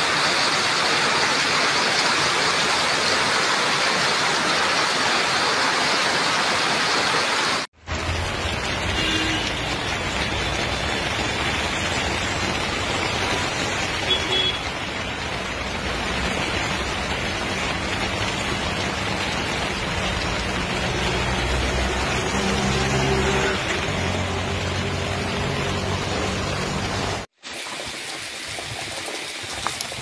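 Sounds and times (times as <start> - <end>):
rain hissing on wet road: 0.0 - 30.0
passing vehicles: 7.8 - 27.3.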